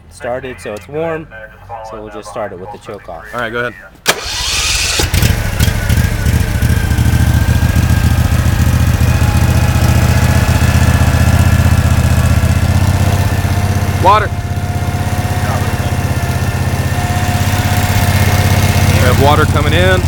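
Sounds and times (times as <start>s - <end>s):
engine running steadily: 4.1s - 20.0s.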